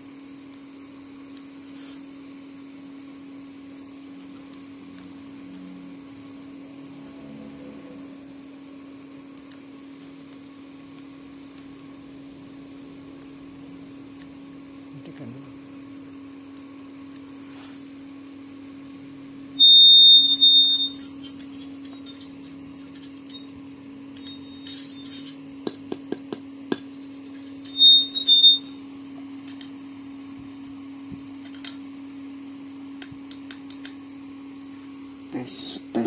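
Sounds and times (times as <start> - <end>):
speaker low hum: 0.0 - 36.0
loud high-pitched tone: 19.5 - 23.6, 27.4 - 29.0
sharp clicks: 33.0 - 34.0.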